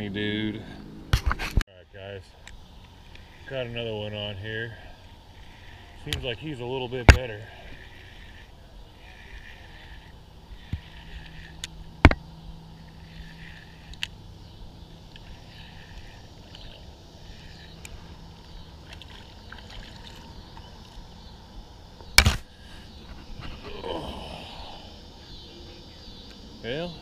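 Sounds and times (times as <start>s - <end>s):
fish splashing: 18.7s - 20.8s.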